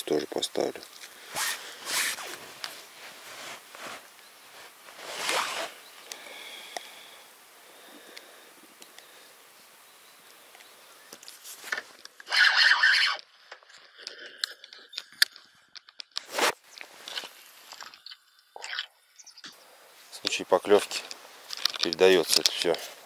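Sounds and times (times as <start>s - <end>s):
fishing tackle rasping rustle: 0.8s - 7.1s, 11.2s - 13.2s
fishing tackle clicks and knocks: 21.0s - 22.8s.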